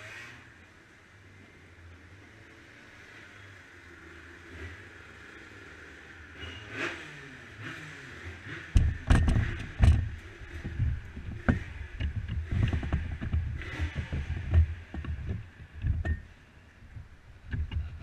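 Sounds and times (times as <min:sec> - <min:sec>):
handling clunks and knocks: 0:08.8 - 0:16.3, 0:17.4 - 0:18.0.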